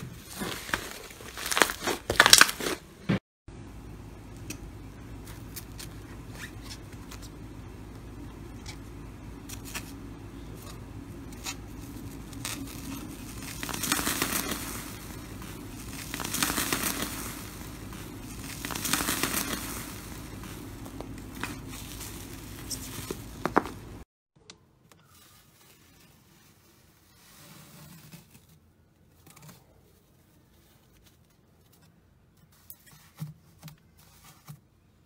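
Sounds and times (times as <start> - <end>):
foil crinkling and crackling: 0.0 - 2.9, 9.5 - 24.0.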